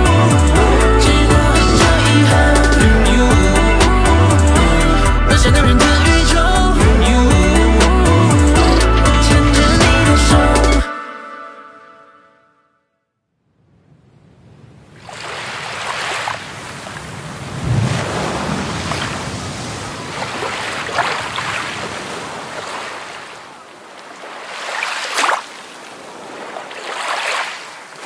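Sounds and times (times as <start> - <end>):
ocean waves washing in: 13.6 - 28.0.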